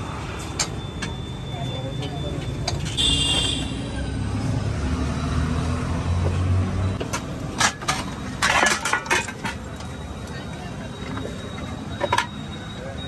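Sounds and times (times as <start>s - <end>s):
steel plates clattering: 7.1s - 9.9s.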